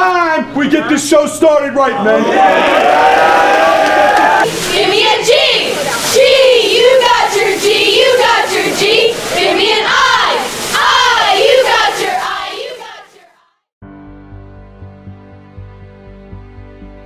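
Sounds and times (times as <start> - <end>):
cheerleaders chanting in unison: 2.4 - 13.4
music: 10.7 - 17.0.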